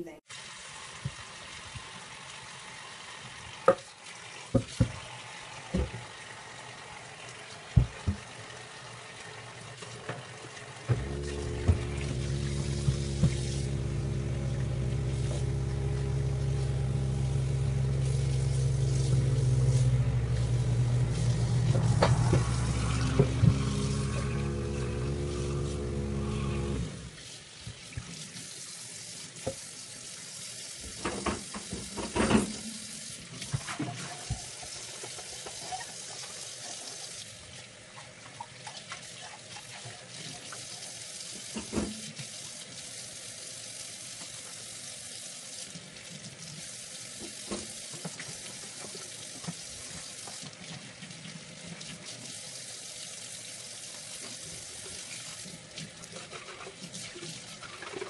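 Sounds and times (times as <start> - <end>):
tap running into sink: 3.6 - 3.9, 4.5 - 5.1, 5.7 - 6.1, 7.7 - 8.3, 10.9 - 26.9, 30.8 - 32.7, 47.2 - 50.8.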